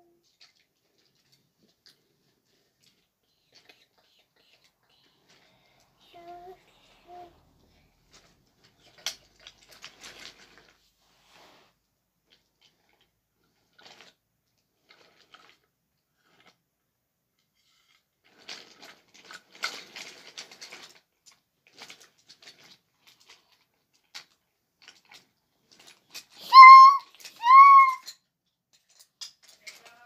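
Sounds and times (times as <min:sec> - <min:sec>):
toy train cars clicking: 0:00.2 - 0:10.8, 0:18.2 - 0:28.2, 0:28.8 - 0:30.0.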